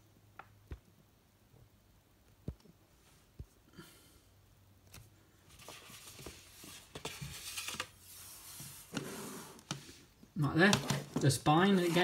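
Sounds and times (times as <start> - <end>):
plastic case rustling and scraping: 5.5 - 12.0.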